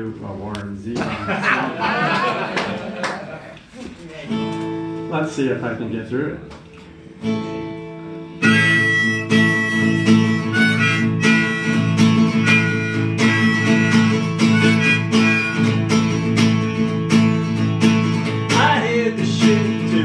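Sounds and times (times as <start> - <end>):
acoustic guitar strumming: 4.3 - 5.2, 6.9 - 20.0.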